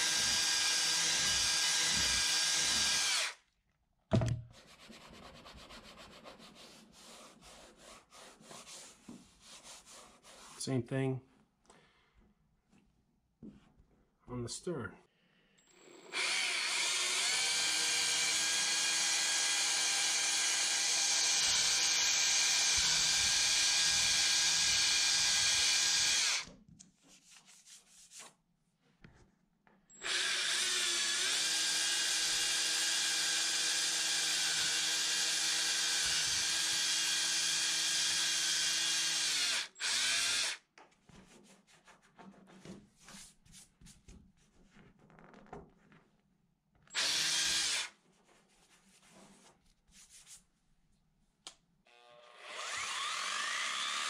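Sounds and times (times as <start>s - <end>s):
cordless drill motor: 0.0s - 3.4s, 15.6s - 26.5s, 30.0s - 40.6s, 46.9s - 47.9s, 51.9s - 54.0s.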